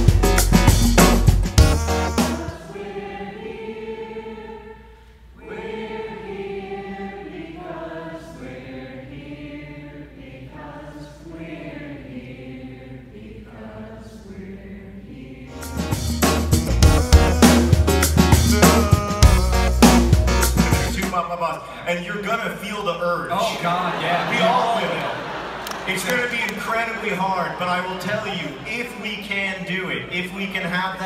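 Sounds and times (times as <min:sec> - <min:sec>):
audience singing together: 0:01.9 - 0:16.0, 0:23.6 - 0:29.5.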